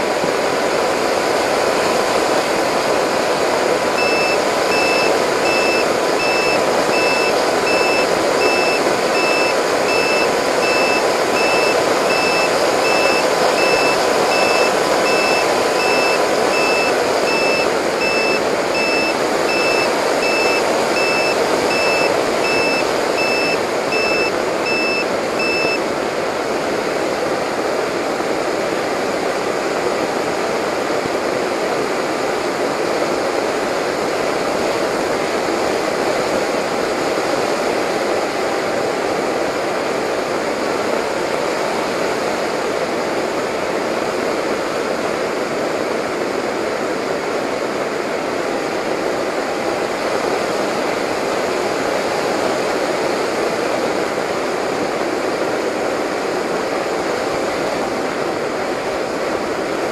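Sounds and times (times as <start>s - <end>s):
high beeps: 4.0s - 25.8s.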